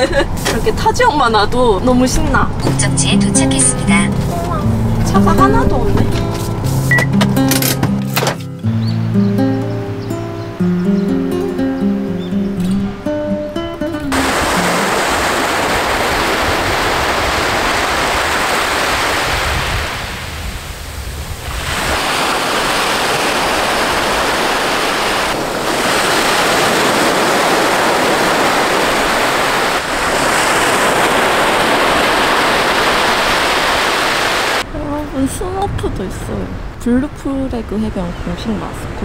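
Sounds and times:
small waves breaking on sand: 14.1 - 34.8.

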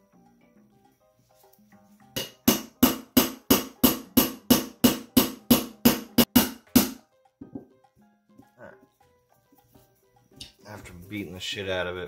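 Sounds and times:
hammer tapping metal punch: 2.2 - 7.7.

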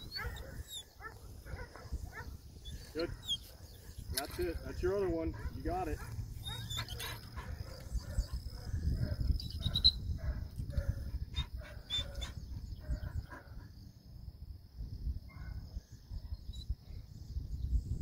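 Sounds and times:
wind rumble on microphone: 0.0 - 18.0
dog barking: 0.1 - 2.4, 5.3 - 13.7, 15.3 - 15.6.

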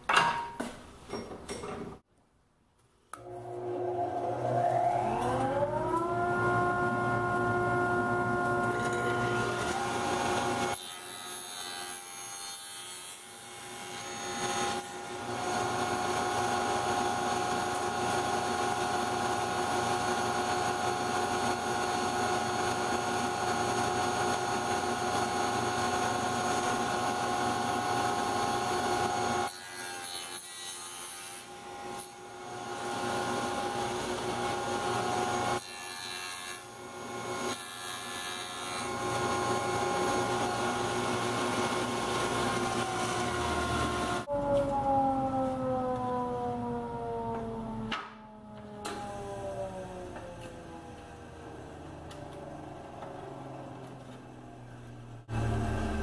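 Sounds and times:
table saw cutting wood: 3.2 - 45.0.

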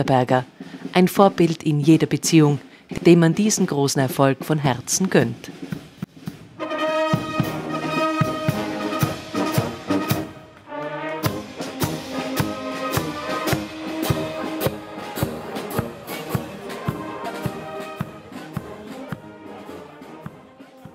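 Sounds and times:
steady drum beat: 0.0 - 20.9
brass band playing a march: 5.5 - 20.9.

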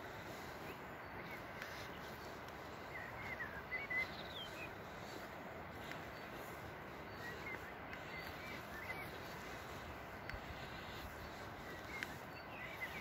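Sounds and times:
faint bird chirps: 0.0 - 13.0
steady hiss: 0.0 - 13.0
light clicks: 11.7 - 12.2.

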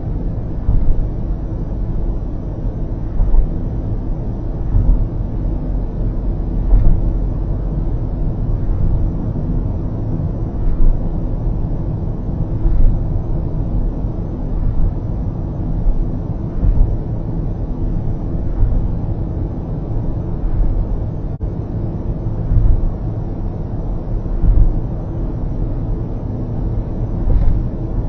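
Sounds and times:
road and tyre rumble: 0.0 - 28.0
light thumps: 0.6 - 1.2, 3.1 - 3.6, 4.6 - 5.2, 6.6 - 7.1, 12.6 - 13.1, 15.8 - 17.1, 22.4 - 23.0, 24.3 - 24.9, 27.2 - 27.8.

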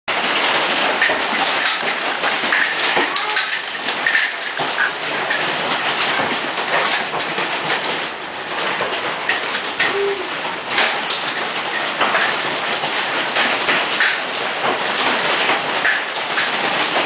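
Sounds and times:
hail clattering on house: 0.1 - 17.0.

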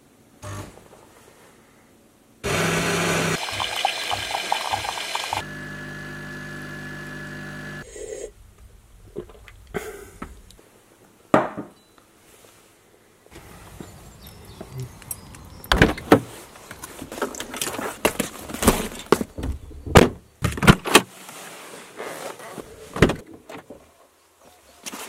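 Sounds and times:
coffee machine pump hum: 2.4 - 7.8
coffee machine grinding: 2.5 - 7.8.

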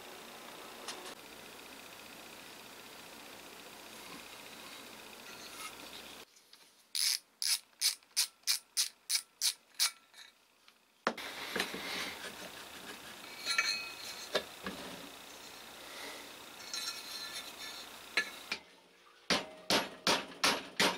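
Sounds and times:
ratchet screwdriver clicking: 7.0 - 10.0.

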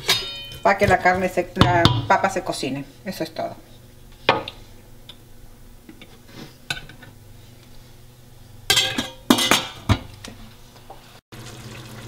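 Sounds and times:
metal lid clattering on pot: 8.7 - 10.1.

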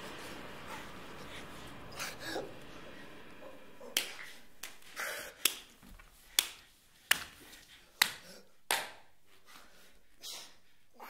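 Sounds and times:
sharp snapping clicks: 6.3 - 7.3.

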